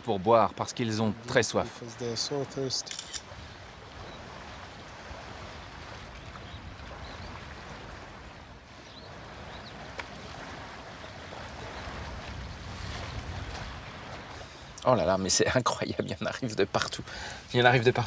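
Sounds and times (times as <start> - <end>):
water sloshing and splashing: 0.7 - 14.8.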